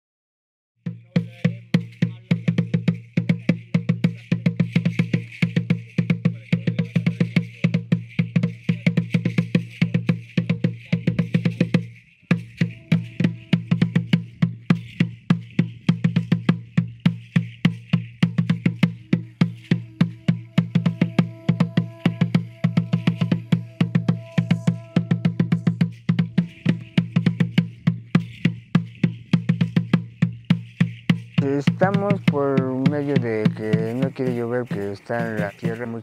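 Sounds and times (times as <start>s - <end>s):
pitched drum: 0.8s - 36.0s
faint shaking hiss: 1.5s - 36.0s.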